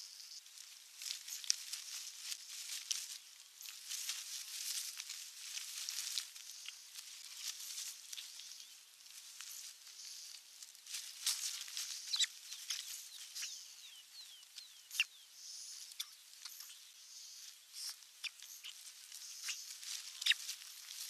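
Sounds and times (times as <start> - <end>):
rustling and clicks of sticks: 0.4 - 13.6, 17.8 - 21.0.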